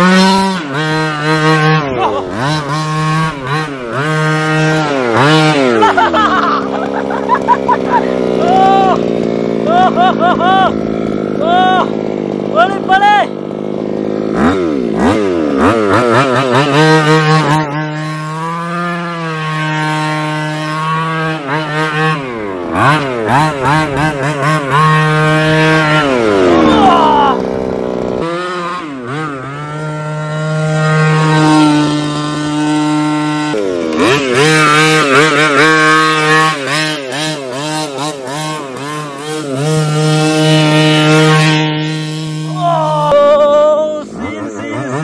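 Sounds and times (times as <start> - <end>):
small two-stroke engine revving: 0.0 - 45.0.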